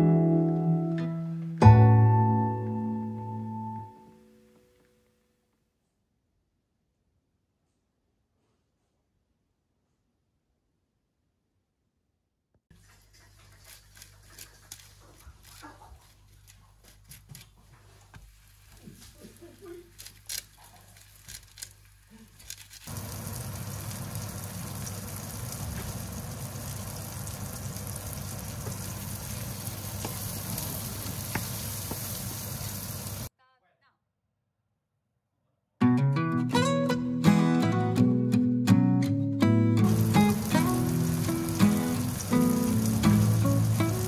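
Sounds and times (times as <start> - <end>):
bread slices frying in oil: 12.8 - 16.4, 18.0 - 33.3, 39.8 - 44.0
oil sizzling in frying pan: 22.8 - 33.3, 39.8 - 44.0.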